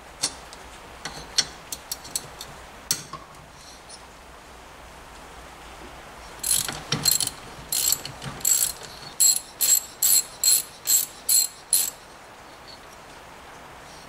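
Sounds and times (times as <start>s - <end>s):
ratchet wrench clicking: 6.4s - 12.0s.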